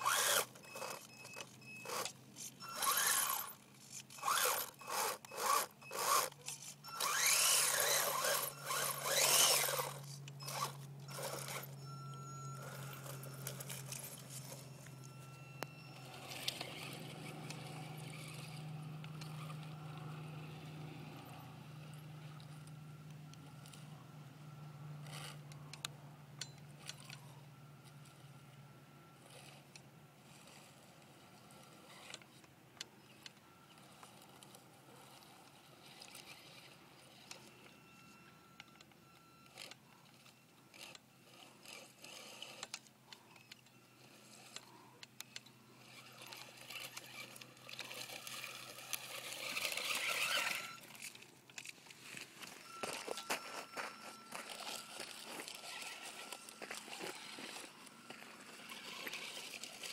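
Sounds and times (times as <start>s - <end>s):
stones scraping under tyres: 0.0s - 11.8s, 12.6s - 15.3s, 45.9s - 59.9s
electric motor whine: 0.0s - 26.2s, 33.0s - 51.7s, 52.4s - 59.9s.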